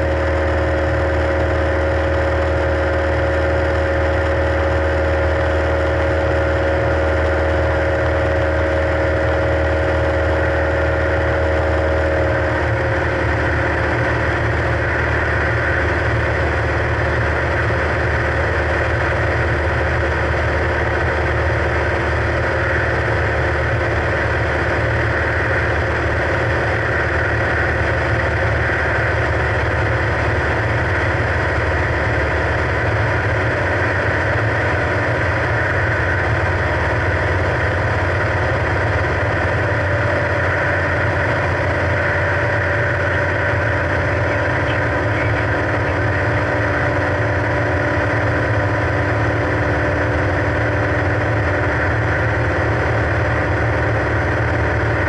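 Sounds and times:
light aircraft engine drone: 0.0s - 55.0s.

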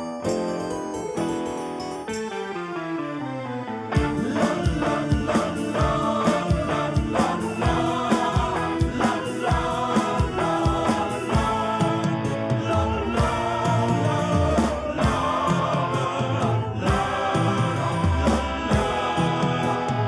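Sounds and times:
song with singing and drums: 4.0s - 20.0s.

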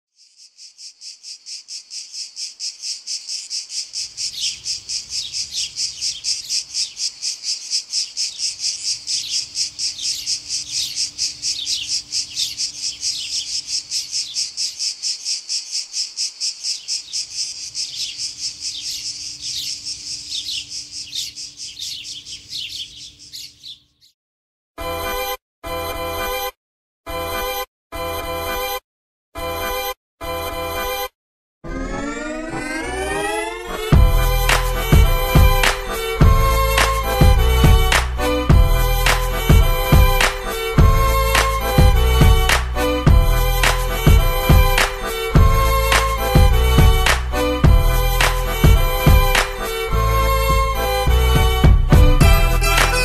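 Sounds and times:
insects chirping: 0.1s - 23.4s
birds chirping: 0.1s - 24.2s, 32.0s - 53.0s.

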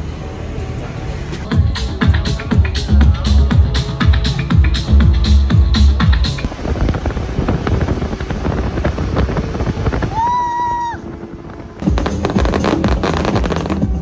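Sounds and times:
fireworks crackling and banging: 6.4s - 10.2s, 11.2s - 14.0s.

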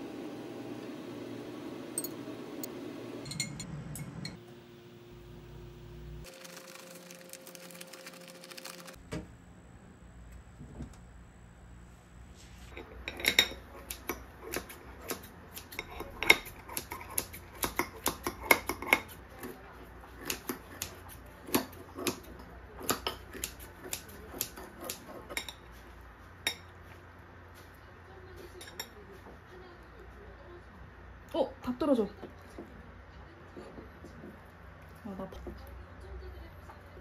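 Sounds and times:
blades and plate clinking: 3.2s - 4.4s
scissors cutting crisp tortilla: 13.8s - 25.3s.

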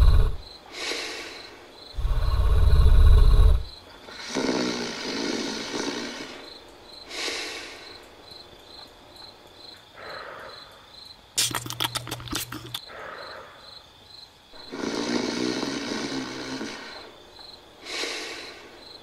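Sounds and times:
snoring and grunting: 0.0s - 0.4s, 2.0s - 6.5s, 14.6s - 17.2s
sharp clicks: 11.4s - 12.8s.

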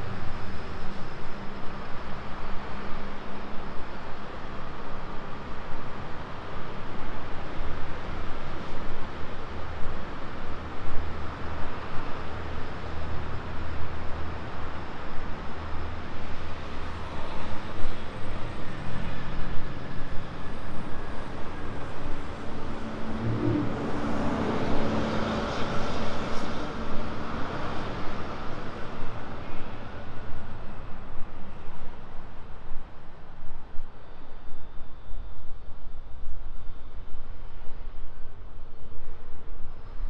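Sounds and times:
road noise: 0.0s - 34.4s
vehicle engines humming: 21.6s - 30.0s.

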